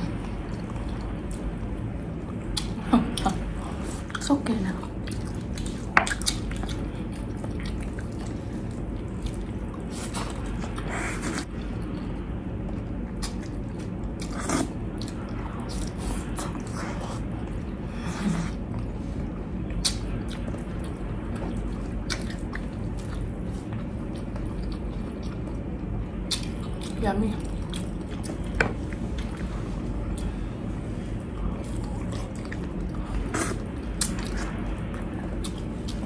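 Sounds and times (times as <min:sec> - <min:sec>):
chewing and biting food: 0:04.9 - 0:17.8, 0:18.7 - 0:30.4.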